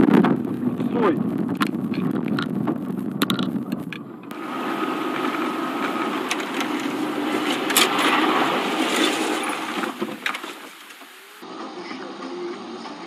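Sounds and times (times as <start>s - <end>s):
car engine and road hum: 0.0s - 12.9s.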